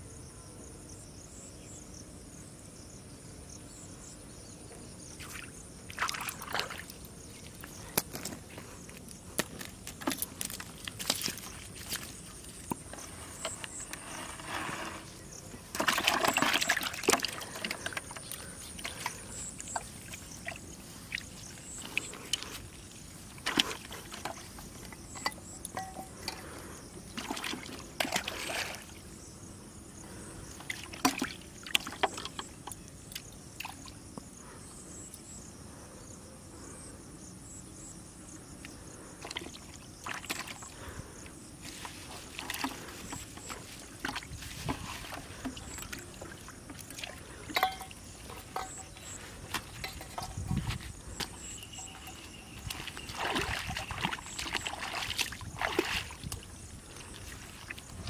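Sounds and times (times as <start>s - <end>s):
fish splashing in water: 15.7s - 22.5s, 51.2s - 58.0s
handling clicks and knocks: 47.5s - 52.2s.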